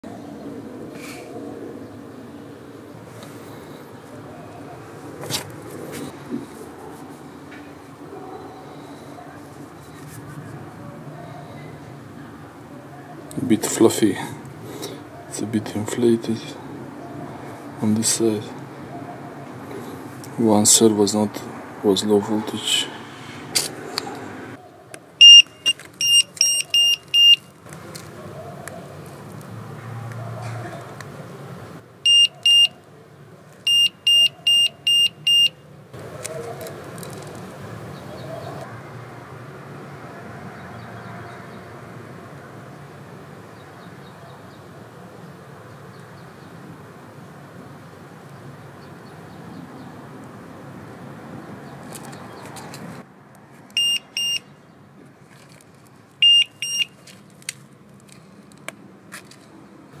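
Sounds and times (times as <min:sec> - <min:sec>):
short high-pitched buzzer beeps: 0:25.2 - 0:27.4
shrill buzzer beeps: 0:25.2 - 0:27.4, 0:32.1 - 0:32.7, 0:33.7 - 0:35.5, 0:53.8 - 0:54.4, 0:56.2 - 0:56.9.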